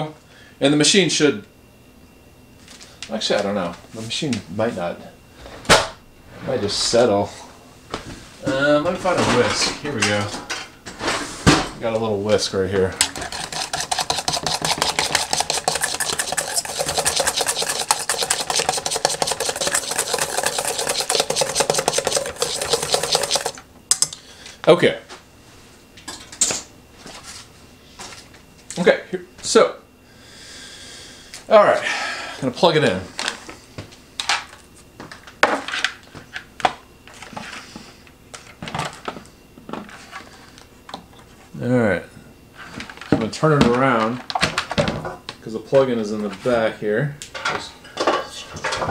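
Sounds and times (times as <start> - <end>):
whisk scraping metal bowl: 13.0 - 23.6.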